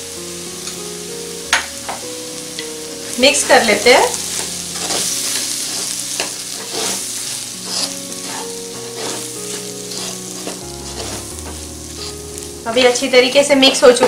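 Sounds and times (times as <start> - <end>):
masala sizzling in a pan: 0.0 - 14.0
wooden spatula scraping a pan: 3.1 - 13.0.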